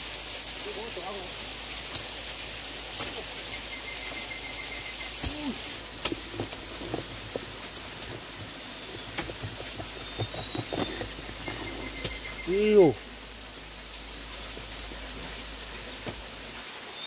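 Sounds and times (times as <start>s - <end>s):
steady background hiss: 0.0s - 17.0s
soil and stones knocking: 5.2s - 12.4s.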